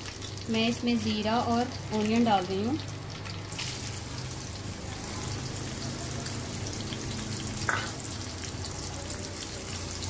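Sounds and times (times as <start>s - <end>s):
onions sizzling in hot fat: 0.0s - 10.0s.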